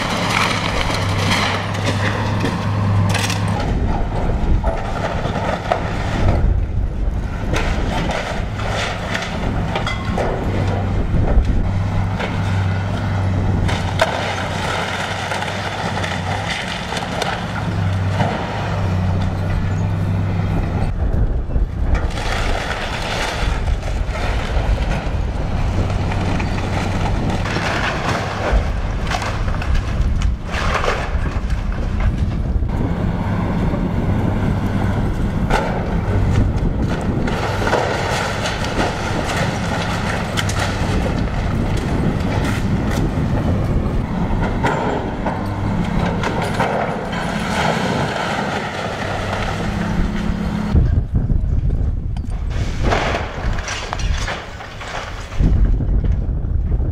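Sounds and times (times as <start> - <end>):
excavator diesel engine humming: 0.0 - 52.6
wood and debris cracking and crashing: 0.0 - 56.9.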